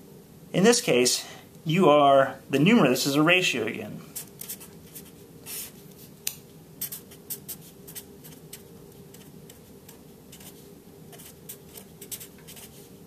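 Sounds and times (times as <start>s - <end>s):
faint low hum: 0.0s - 13.0s
marker pen writing on paper: 4.2s - 5.8s, 6.8s - 12.8s.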